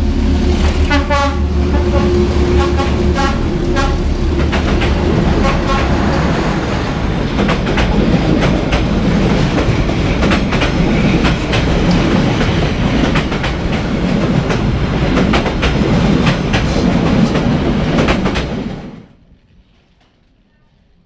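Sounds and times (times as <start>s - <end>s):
steel wheels rumbling on rails: 0.0s - 19.2s
wheels clacking over rail joints: 0.5s - 19.0s.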